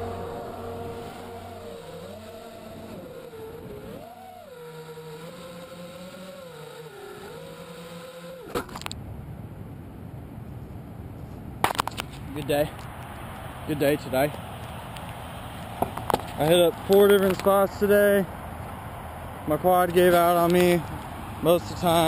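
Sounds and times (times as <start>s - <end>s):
quadcopter motors whining: 0.0s - 8.9s.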